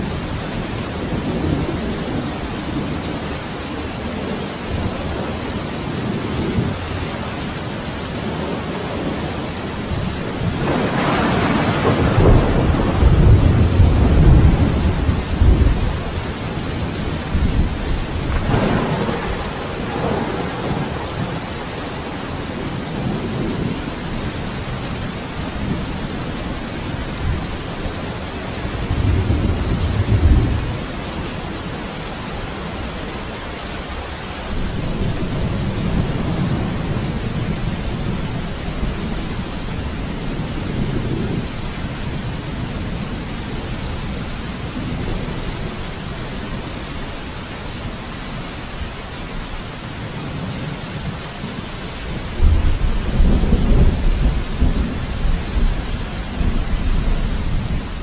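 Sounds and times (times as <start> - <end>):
steady rain hissing: 0.0 - 58.0
thunder rolling: 9.9 - 23.8.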